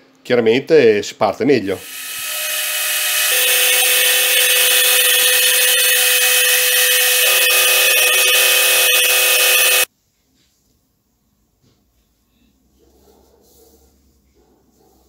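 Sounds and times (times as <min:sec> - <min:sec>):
end mill cutting metal: 0:01.6 - 0:09.9
spindle steady tone: 0:01.7 - 0:09.9.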